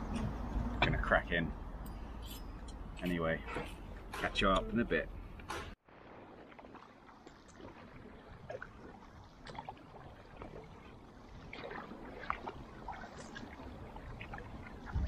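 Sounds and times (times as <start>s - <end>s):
low steady water rush: 4.0s - 15.0s
water splashes and drips: 5.8s - 15.0s
kayak paddle strokes in water: 6.2s - 15.0s.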